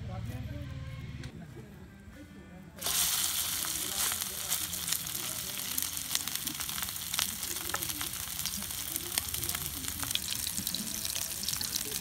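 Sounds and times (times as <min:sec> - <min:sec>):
burger patty sizzling in a pan: 0:02.8 - 0:12.0.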